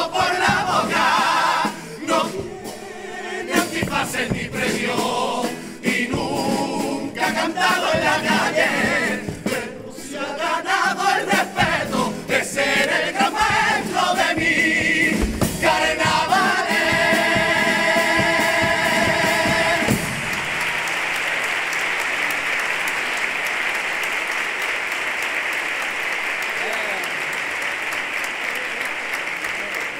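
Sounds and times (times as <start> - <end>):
choir singing in harmony: 0.0 - 20.6
audience applauding: 17.9 - 29.9.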